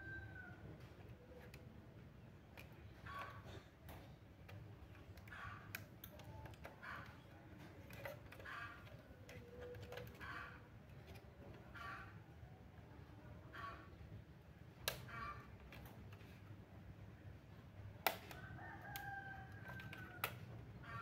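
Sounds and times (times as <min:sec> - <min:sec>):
faint clicks handling laptop parts: 0:02.5 - 0:10.3, 0:18.0 - 0:20.6.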